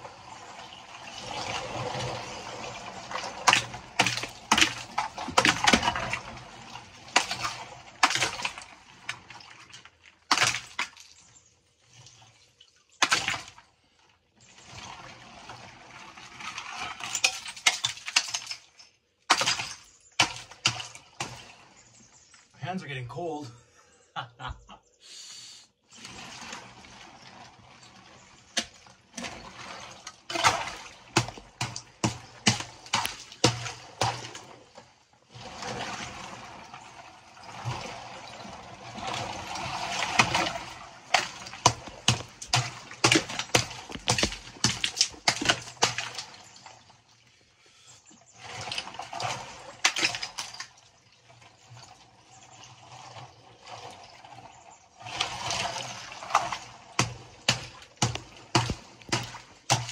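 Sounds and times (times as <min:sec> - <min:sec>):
water sloshing and splashing: 0:00.0 - 0:22.6, 0:25.8 - 0:59.9
hammer knocking and cracking ice: 0:03.4 - 0:06.2, 0:07.2 - 0:08.6, 0:10.3 - 0:11.0, 0:13.0 - 0:13.5, 0:19.3 - 0:21.5, 0:28.6 - 0:29.3, 0:30.3 - 0:34.4, 0:40.2 - 0:46.2, 0:49.8 - 0:50.6, 0:56.3 - 0:59.9.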